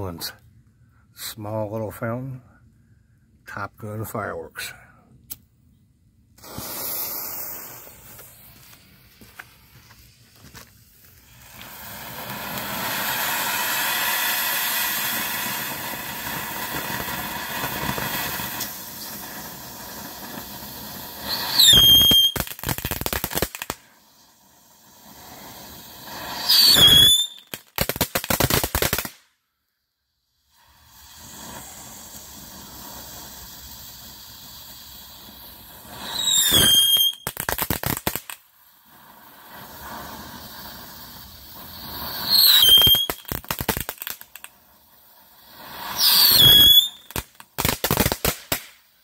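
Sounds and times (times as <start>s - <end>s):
shrill firework whistles: 6.4s - 10.2s, 11.1s - 29.3s, 30.4s - 49.0s
fuse hissing: 6.4s - 22.4s, 23.8s - 27.8s, 30.3s - 37.2s, 38.5s - 47.6s
firework fountain sparks rushing: 6.4s - 29.2s, 30.4s - 49.0s
rapid firework crackling: 6.4s - 29.3s, 30.5s - 49.0s.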